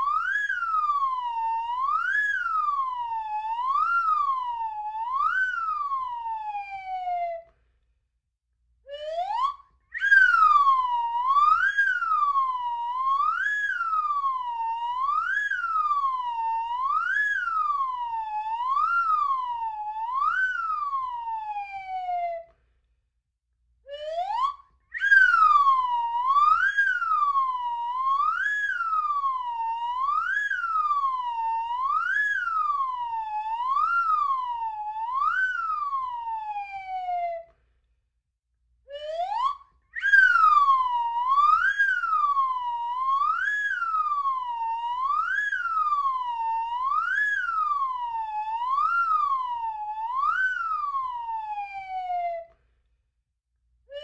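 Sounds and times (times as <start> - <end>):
slide whistle: 8.9 - 21.8, 23.9 - 37.6, 38.9 - 52.6.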